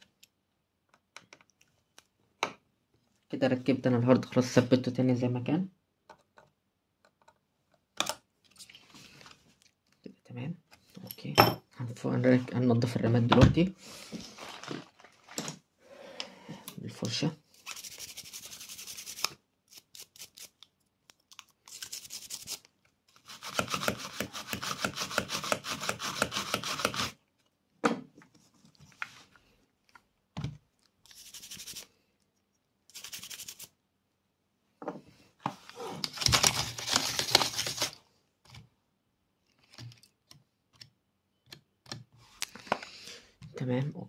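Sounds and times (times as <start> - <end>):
brush scrubbing: 17.6 - 19.3, 31.1 - 31.9, 32.9 - 33.7.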